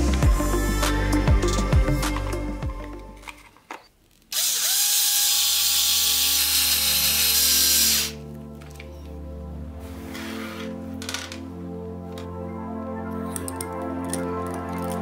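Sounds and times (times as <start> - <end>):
electric screwdriver whirring: 4.3 - 8.2.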